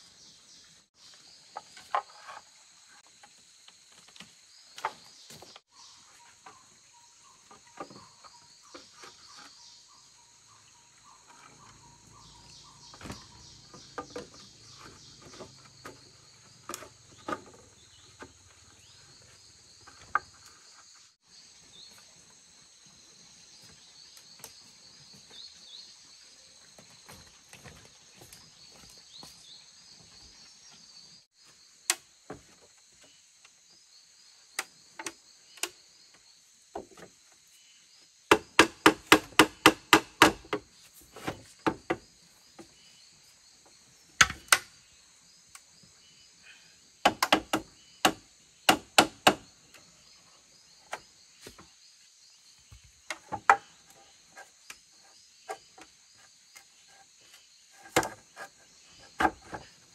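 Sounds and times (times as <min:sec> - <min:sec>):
tool striking bamboo: 0:38.3 - 0:40.6, 0:44.2 - 0:44.8, 0:47.0 - 0:49.5, 0:57.8 - 0:58.5.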